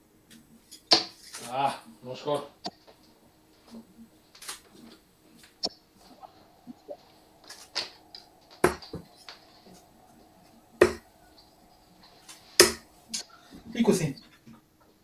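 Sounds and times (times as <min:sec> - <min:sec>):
darts thudding into dartboard: 0:10.8 - 0:11.1, 0:12.6 - 0:12.8.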